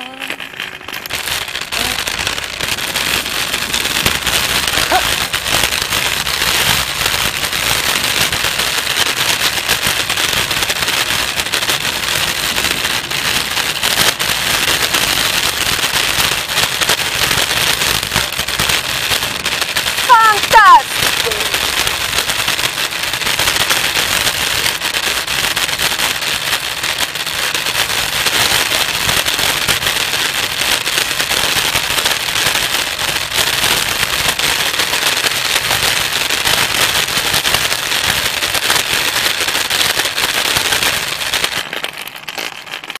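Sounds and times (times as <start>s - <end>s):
scooter wheels rattling on asphalt: 0.0s - 43.0s.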